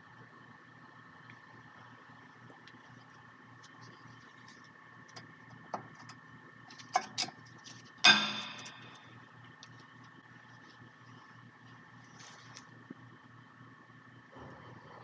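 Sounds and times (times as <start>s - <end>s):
loud ringing metallic clack: 8.0s - 9.1s.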